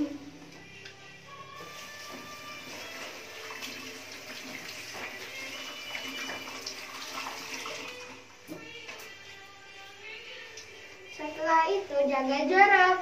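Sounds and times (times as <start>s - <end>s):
child washing hands: 1.6s - 8.2s
tap water running into basin: 1.6s - 9.1s.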